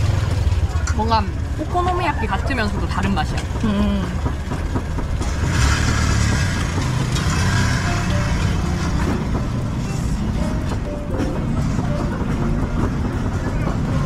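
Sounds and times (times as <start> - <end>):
street noise: 0.0 - 14.0
background music: 4.1 - 14.0.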